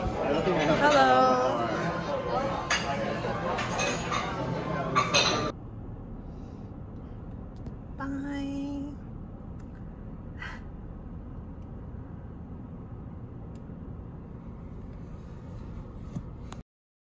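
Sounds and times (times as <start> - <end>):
idling car cabin hum: 5.6 - 16.6.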